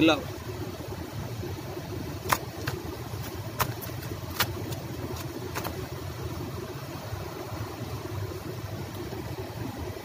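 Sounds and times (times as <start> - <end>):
steady low rumble: 0.0 - 10.0
fish slapping on concrete: 2.2 - 5.9.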